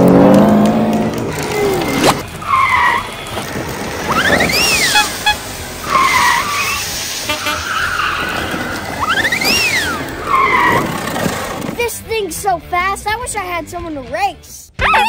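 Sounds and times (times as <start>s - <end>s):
race car engine revving: 0.0s - 11.8s
tyre squeals: 1.5s - 11.8s.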